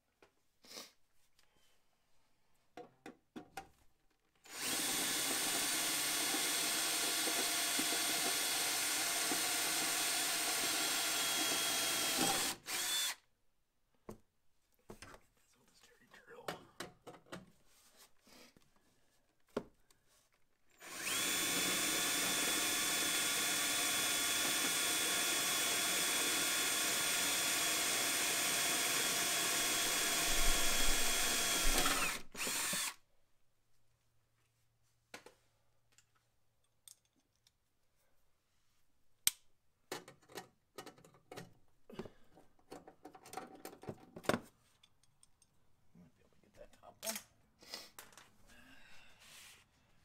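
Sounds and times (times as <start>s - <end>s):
cordless drill running: 4.5s - 13.2s, 20.8s - 33.0s.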